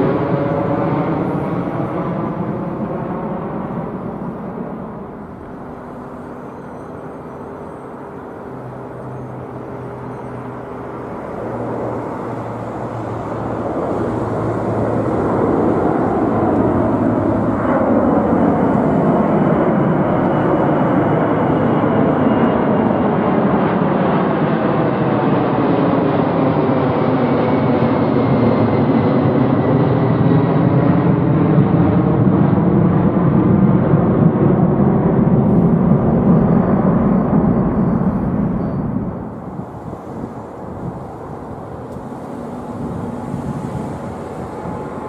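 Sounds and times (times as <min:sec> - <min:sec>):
jet engine whine falling in pitch: 0:00.0 - 0:45.0
jet roar overhead: 0:00.0 - 0:45.0.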